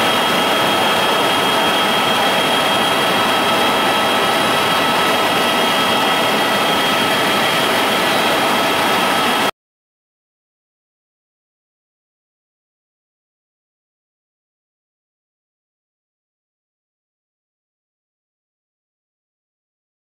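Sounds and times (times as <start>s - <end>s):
engine drone: 0.0s - 9.5s
high whining tones: 0.0s - 9.5s.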